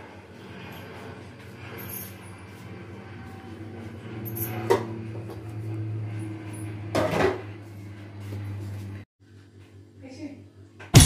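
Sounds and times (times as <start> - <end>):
steady low hum: 0.0 - 10.8.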